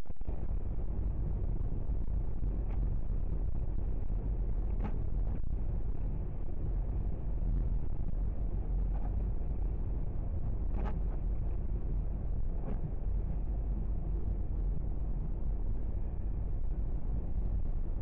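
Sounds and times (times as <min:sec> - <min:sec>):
engine and road noise: 0:00.1 - 0:18.0.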